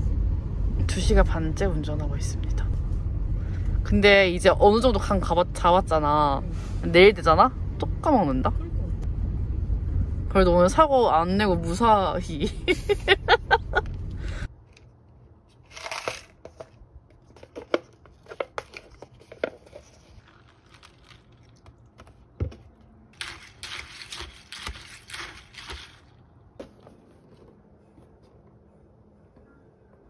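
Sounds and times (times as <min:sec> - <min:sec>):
foil packaging crinkling: 0:15.6 - 0:16.5, 0:19.1 - 0:21.7, 0:23.2 - 0:26.2.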